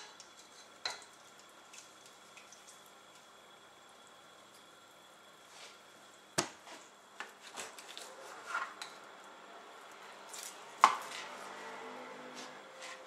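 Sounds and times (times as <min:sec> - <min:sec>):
knife scraping on board: 0:12.3 - 0:13.0.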